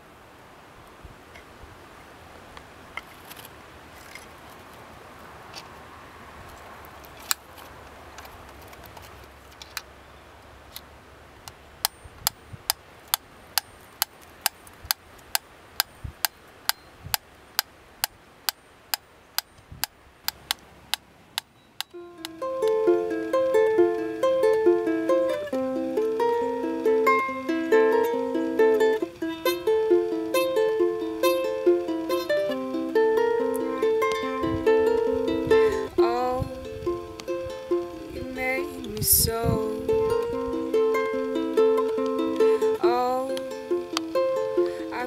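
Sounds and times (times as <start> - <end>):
metronome ticking: 11.8 - 39.1, 39.8 - 45.0.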